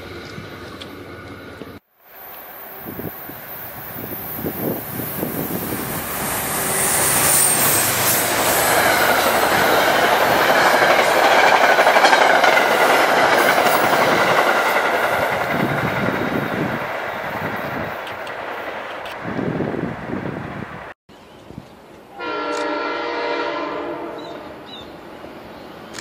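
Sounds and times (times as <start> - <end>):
train passing at speed: 0.0 - 21.0, 22.1 - 26.0
high wheel squeal: 2.8 - 10.0.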